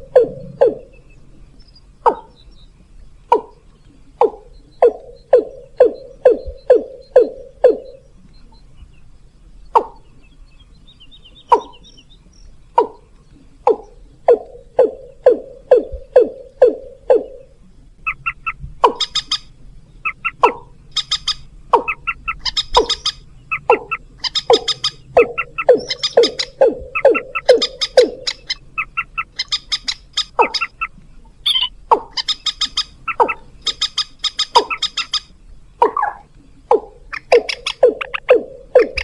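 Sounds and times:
downward-sliding bird calls: 18.0s - 39.0s.

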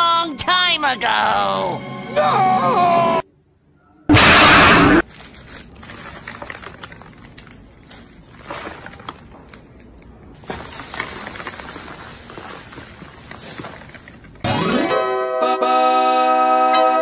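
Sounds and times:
loud burst of noise: 4.1s - 5.0s
foil wrapper crinkling: 5.0s - 14.5s
granola bar crackling: 5.0s - 14.5s.

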